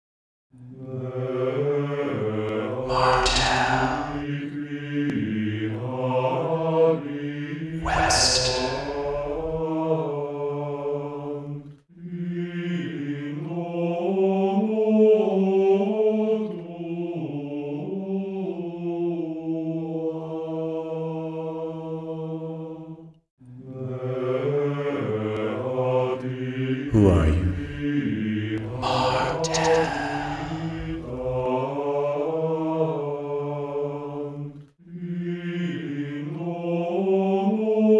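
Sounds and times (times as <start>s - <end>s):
low voices chanting: 0.8s - 11.4s, 23.7s - 37.9s.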